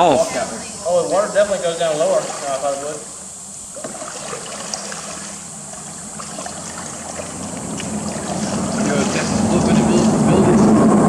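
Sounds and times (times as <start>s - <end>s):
paddle splashing water: 1.6s - 10.3s.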